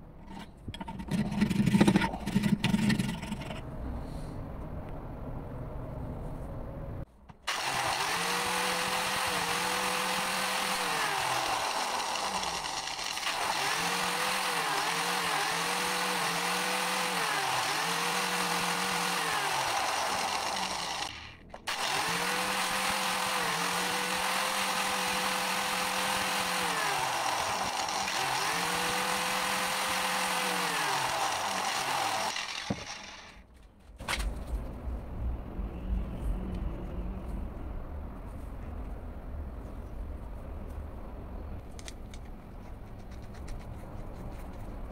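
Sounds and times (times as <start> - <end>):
angle grinder grinding steel: 7.5 - 33.4.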